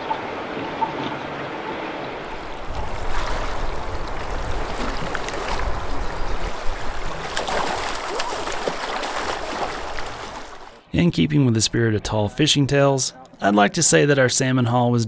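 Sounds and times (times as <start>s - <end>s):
river current rushing: 0.0s - 10.8s
fish splashing in net: 2.7s - 10.8s.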